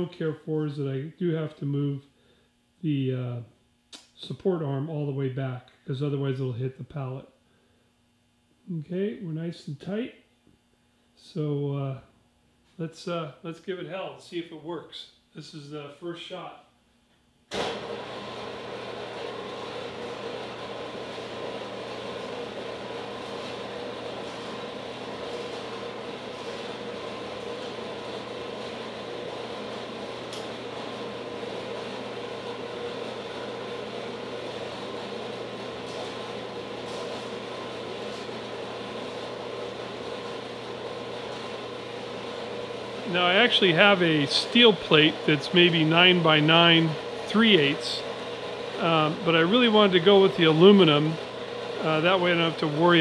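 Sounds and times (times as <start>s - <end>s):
bandsaw running: 17.5s - 53.0s.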